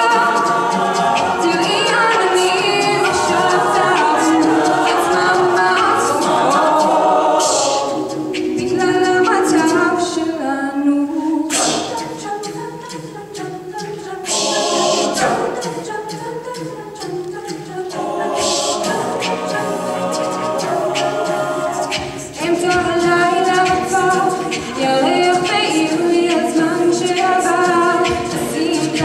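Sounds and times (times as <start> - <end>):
a cappella group singing: 0.0 - 29.0
short sharp hiss accents: 7.3 - 8.5.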